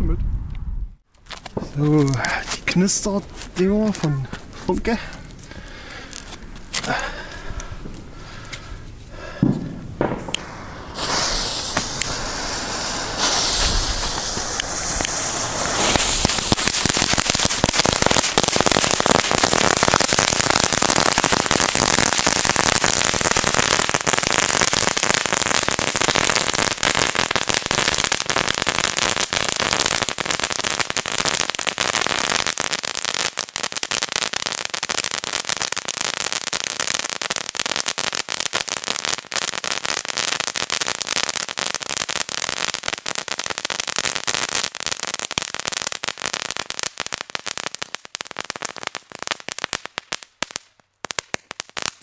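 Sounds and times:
firework crackling: 1.3 - 52.0
hiss of sparks: 10.3 - 26.6.

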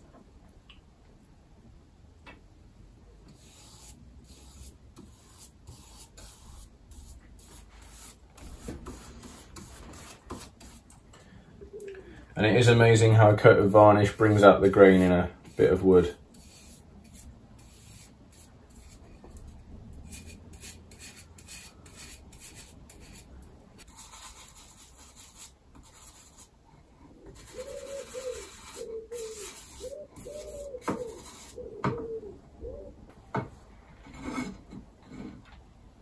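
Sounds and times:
bristle brush scrubbing wood: 3.4 - 10.8, 13.7 - 19.0, 27.3 - 31.6.

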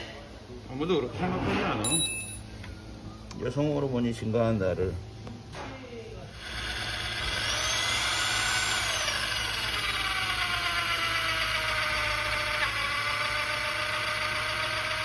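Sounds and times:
electric drill boring metal: 6.3 - 15.0.

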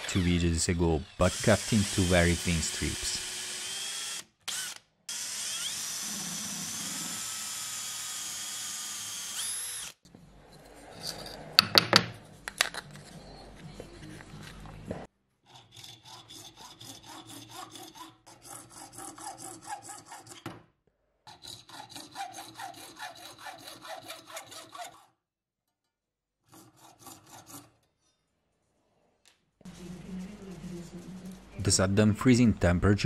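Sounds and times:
hacksaw cutting metal rod: 15.4 - 20.5, 21.3 - 25.1, 26.5 - 27.9.

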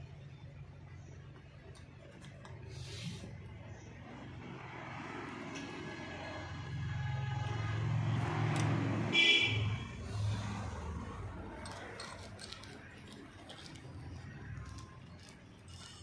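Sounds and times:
vehicle engine rumble: 0.0 - 16.0
horn honk: 9.0 - 10.0.

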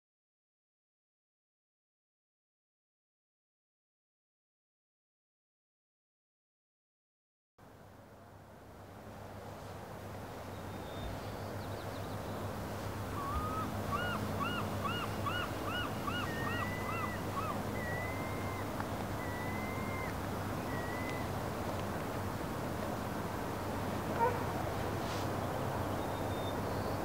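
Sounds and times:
steady background hiss: 7.6 - 27.0
bird calls: 13.1 - 21.3.

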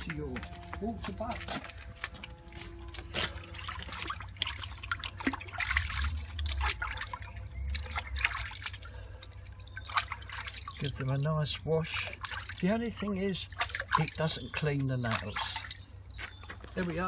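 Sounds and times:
hands splashing in water: 3.1 - 11.0, 12.0 - 16.4.

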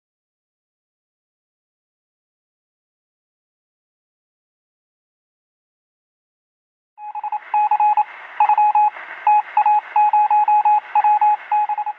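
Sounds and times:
morse code beeps: 7.0 - 11.9
radio hiss: 7.0 - 11.9.

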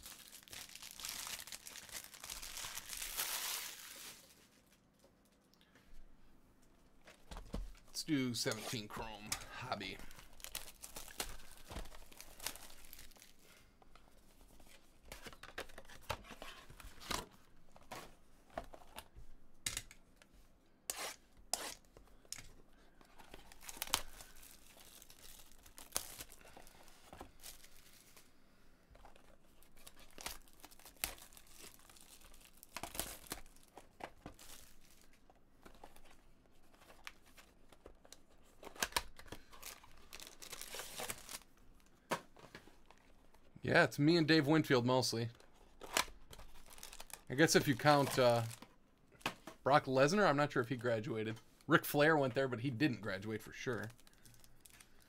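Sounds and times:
packaging ripping: 0.0 - 4.3, 10.3 - 13.4, 23.4 - 26.5, 29.7 - 35.1, 38.6 - 41.4, 45.8 - 48.6
wrappers rustling: 0.0 - 5.4, 7.9 - 13.5, 23.2 - 28.3, 29.1 - 37.5, 39.6 - 41.9, 53.7 - 55.0.

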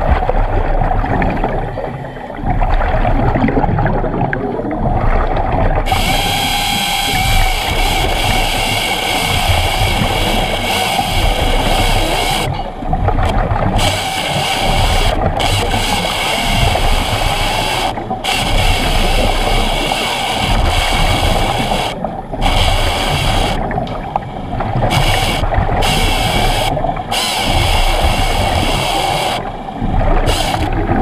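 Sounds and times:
hydraulic chainsaw cutting wood: 5.9 - 23.6, 24.9 - 29.5, 30.2 - 30.8.

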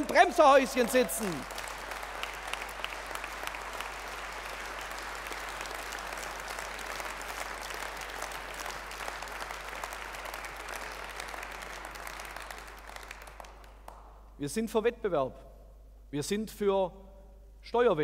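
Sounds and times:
audience applauding: 0.0 - 14.1.

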